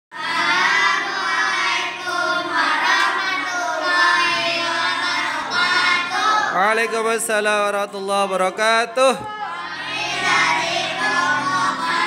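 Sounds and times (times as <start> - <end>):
children singing in unison: 0.2 - 6.7, 9.4 - 12.0.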